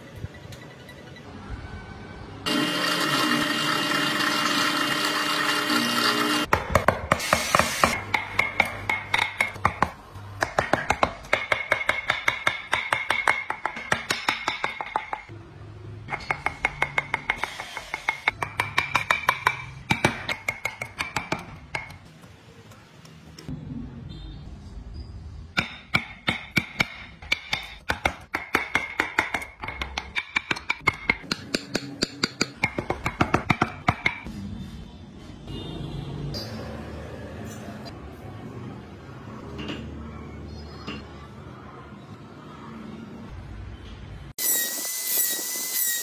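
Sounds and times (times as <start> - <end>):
rapid tapping on a chisel: 7.8 - 15.3, 16.1 - 22.2, 25.6 - 34.3.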